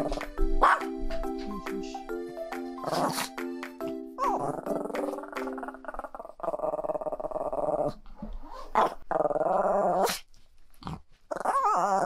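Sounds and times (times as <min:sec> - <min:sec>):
small dog whiny growl: 0:04.2 - 0:10.2, 0:10.8 - 0:12.0.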